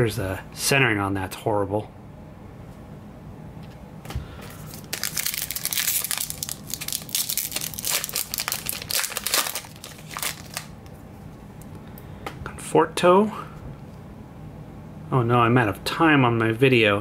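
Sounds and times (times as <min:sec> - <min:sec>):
plastic wrapper crinkling: 0:04.5 - 0:11.0.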